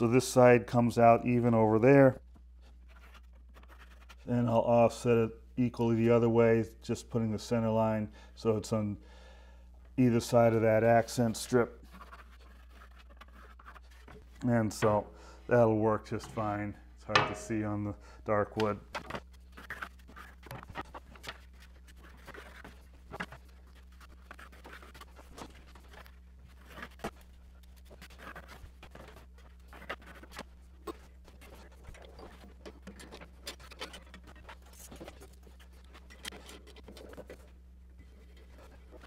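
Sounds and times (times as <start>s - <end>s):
low electrical hum: 0.0s - 39.0s
wood knocking on metal table: 17.1s - 17.5s.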